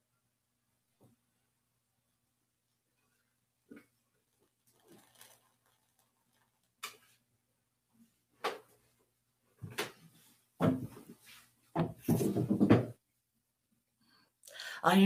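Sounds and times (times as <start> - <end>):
handling knocks and clunks: 11.8 - 13.0.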